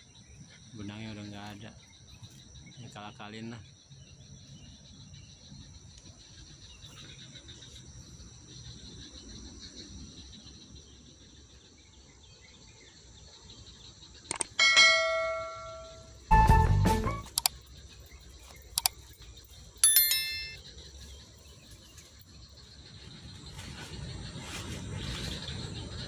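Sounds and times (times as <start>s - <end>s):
insects chorus: 0.0s - 16.4s, 17.1s - 26.0s
click: 14.3s - 14.5s, 17.3s - 17.6s, 18.8s - 19.0s
bell-like chime: 14.6s - 16.2s, 19.8s - 20.6s.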